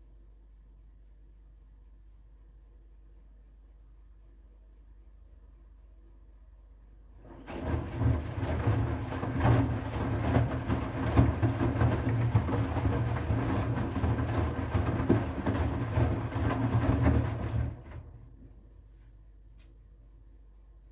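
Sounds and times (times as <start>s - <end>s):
water sloshing in drum: 7.2s - 18.2s
washing machine motor: 7.2s - 18.3s.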